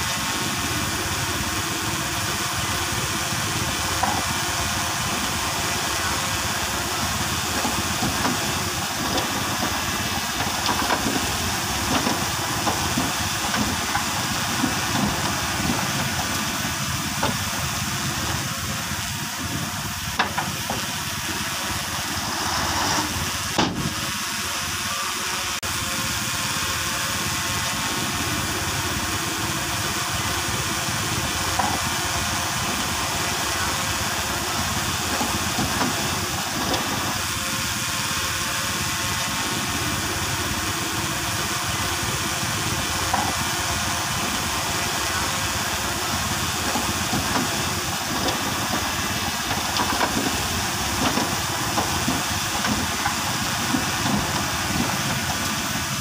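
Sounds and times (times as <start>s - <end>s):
bulldozer diesel engine running: 0.0s - 56.0s
constant hiss: 0.0s - 56.0s.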